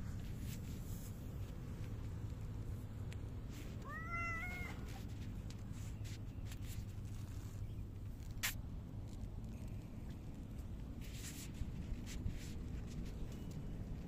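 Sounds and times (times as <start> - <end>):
cat meowing: 3.8 - 5.0.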